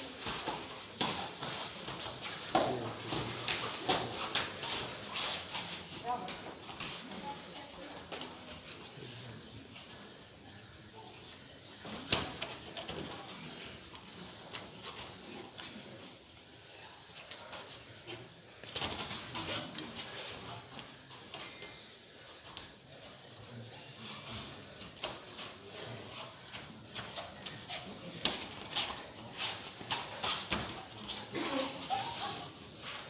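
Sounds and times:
bare feet shuffling on mats: 24.0 - 33.0.

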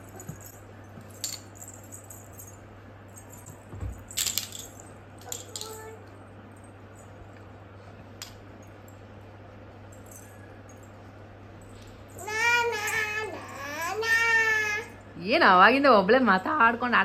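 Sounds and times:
low steady hum: 0.0 - 17.0
toddler vocal sound: 12.1 - 15.0.

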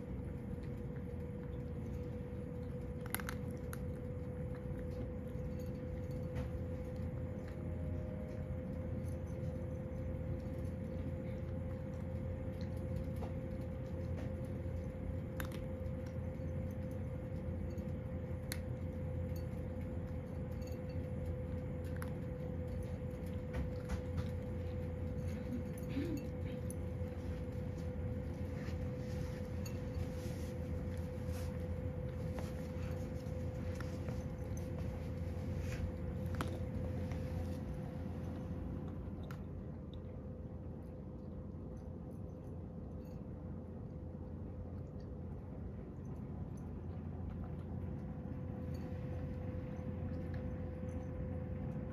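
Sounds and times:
cat crunching dry food: 0.0 - 40.4
low room hum: 0.0 - 51.9.

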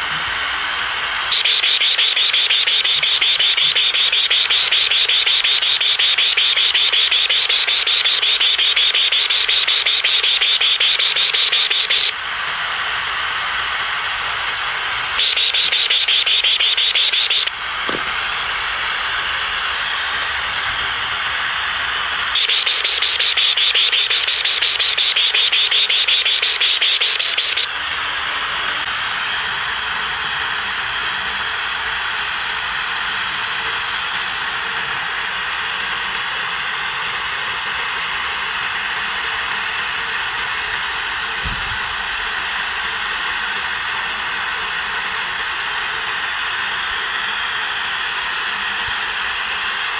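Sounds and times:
radio static hiss: 0.0 - 12.1, 13.8 - 31.4
warbling whine: 0.0 - 49.9.

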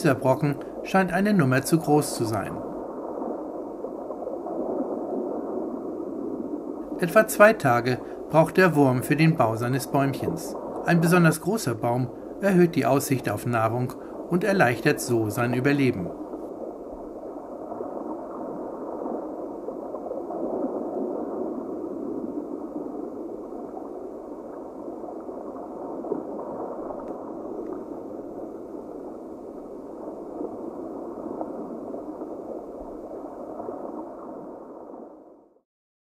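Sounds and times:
water bubbling and gurgling: 0.0 - 35.4.

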